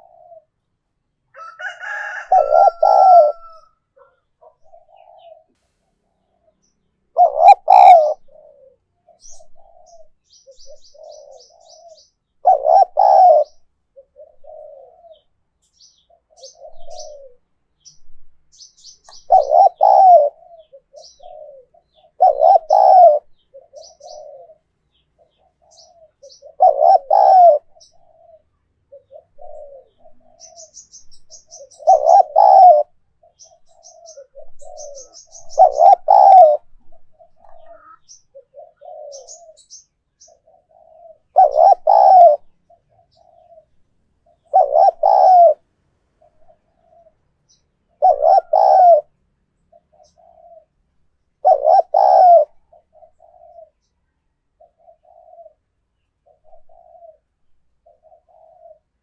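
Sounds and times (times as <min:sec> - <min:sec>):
dove cooing: 0:00.0 - 0:00.7, 0:01.3 - 0:05.6, 0:06.2 - 0:59.0
small birds chirping: 0:00.0 - 0:59.0.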